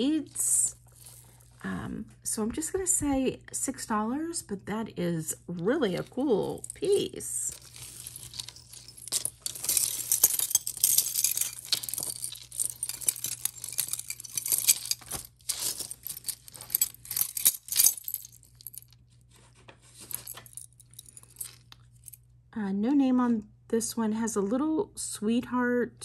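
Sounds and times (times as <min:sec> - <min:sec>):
jewelry clinking and jangling: 0:00.0 - 0:01.6, 0:05.8 - 0:19.1, 0:19.8 - 0:22.2
rustling: 0:06.5 - 0:22.2.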